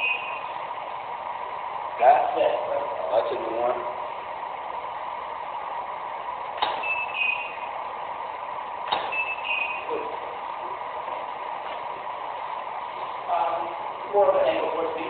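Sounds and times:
short high beep: 0.0 - 0.5, 6.8 - 7.6, 9.1 - 9.9
steady room hum: 0.0 - 15.0.

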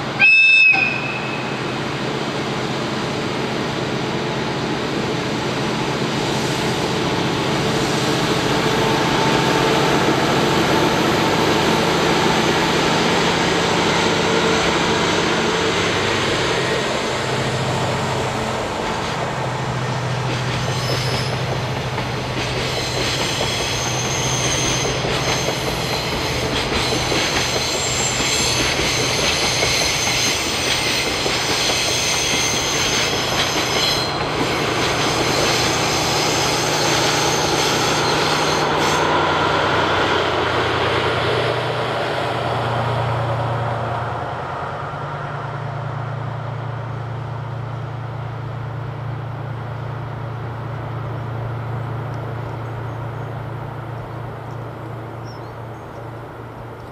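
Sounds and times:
high wheel squeal: 20.6 - 21.5, 22.6 - 39.2.

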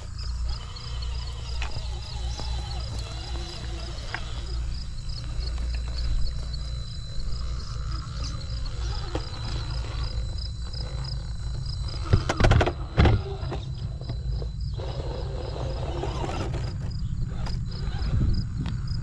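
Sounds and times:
steady low rumble: 0.0 - 19.0
rc car knocking against rocks: 0.6 - 4.6, 11.5 - 17.7.

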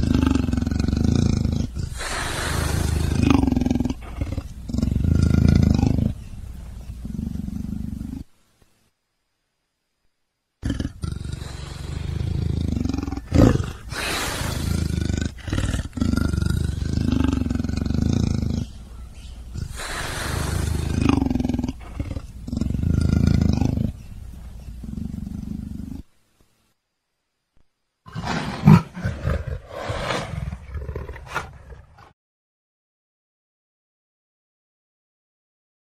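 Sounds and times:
big cat growling and roaring: 0.0 - 6.2, 10.6 - 18.8, 19.4 - 24.0, 28.1 - 32.2.

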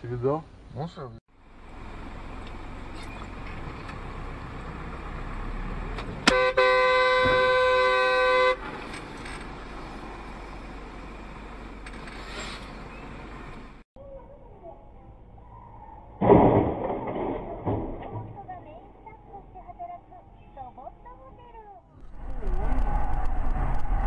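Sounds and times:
vehicle road noise: 0.0 - 24.0
car horn: 6.2 - 8.7
car collision bang: 16.2 - 18.5.

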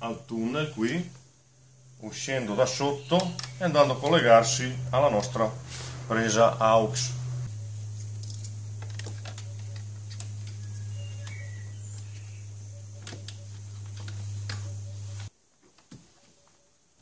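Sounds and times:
steady low hum: 0.0 - 15.3
cable clicking and rustling in plastic: 8.1 - 12.2, 12.9 - 14.7.

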